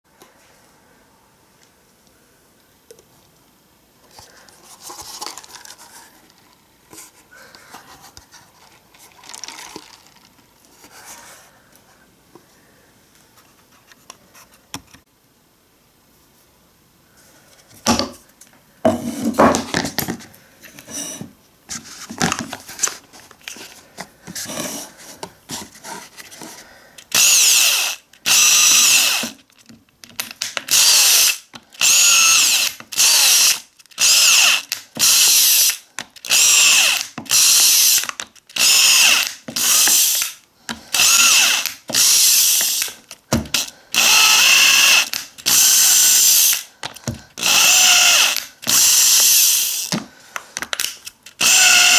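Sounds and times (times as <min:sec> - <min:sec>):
drill whining through plastic: 0:27.0 - 0:29.4, 0:30.2 - 0:50.0, 0:50.6 - 0:51.9.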